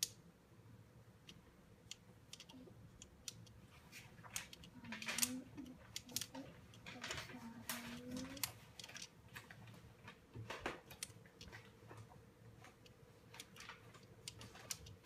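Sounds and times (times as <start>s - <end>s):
abacus beads clicking: 0.0s - 0.2s, 1.2s - 9.5s, 10.8s - 11.7s, 12.7s - 15.0s.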